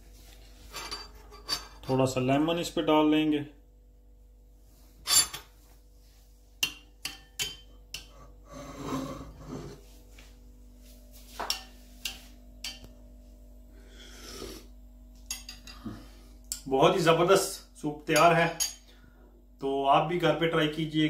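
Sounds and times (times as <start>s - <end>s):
metal spoon clinking on ceramic bowl: 6.6s - 8.1s, 11.4s - 12.9s, 15.2s - 15.7s.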